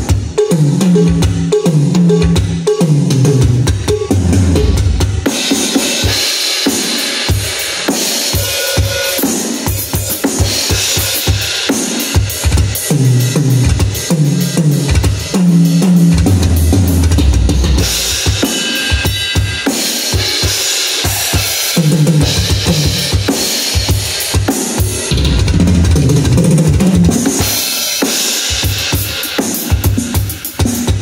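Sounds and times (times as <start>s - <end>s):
electronic kick and snare drums: 0.0s - 31.0s
tom fills: 25.1s - 27.1s.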